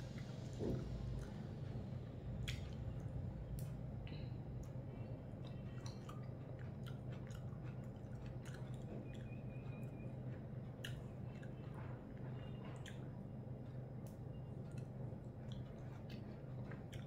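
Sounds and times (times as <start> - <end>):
chewing: 0.8 - 1.8, 4.5 - 17.0.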